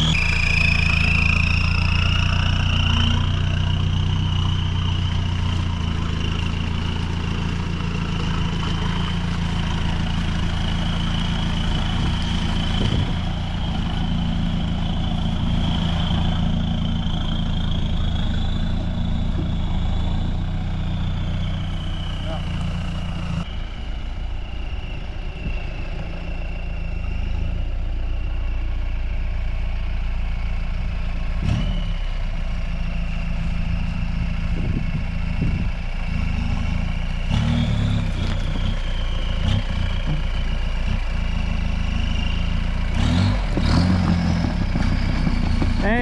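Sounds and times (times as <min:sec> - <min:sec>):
vehicle engine running at low speed: 0:00.0 - 0:46.0.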